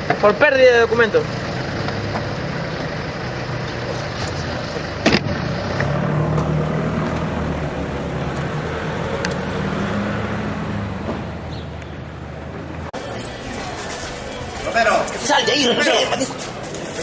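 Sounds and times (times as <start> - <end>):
truck engine running: 0.0 - 9.4.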